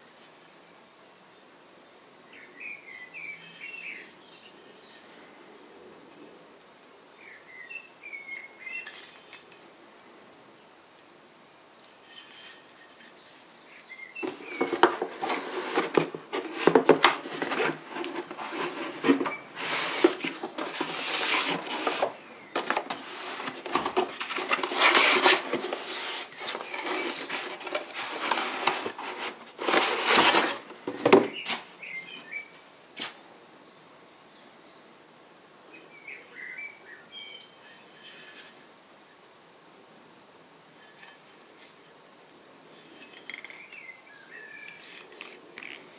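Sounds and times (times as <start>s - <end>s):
scraping and rustling cardboard: 12.0s - 31.7s.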